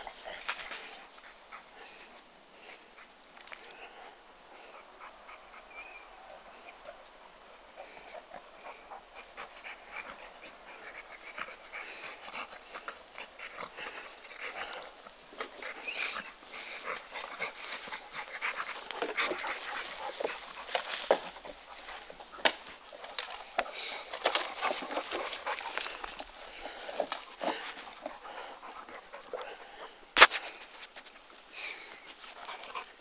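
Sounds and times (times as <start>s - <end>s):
crackling clicks and scuffs: 0.0s - 4.0s, 6.2s - 33.0s
dog panting: 0.0s - 33.0s.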